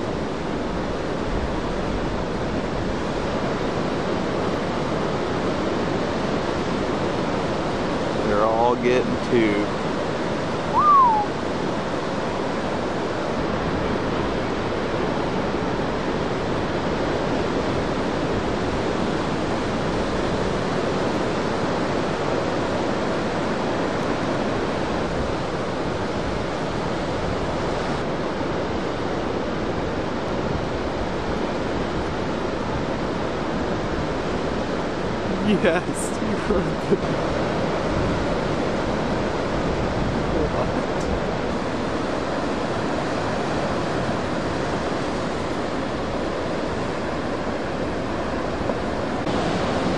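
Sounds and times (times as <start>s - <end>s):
ocean surf breaking: 0.0s - 49.9s
whistle-like call: 10.7s - 11.4s.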